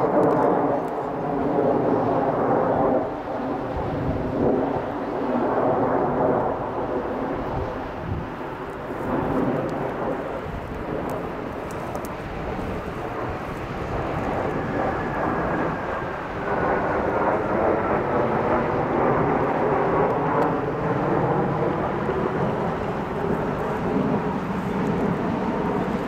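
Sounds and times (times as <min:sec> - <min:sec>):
jet engines rumbling overhead: 0:00.0 - 0:26.0.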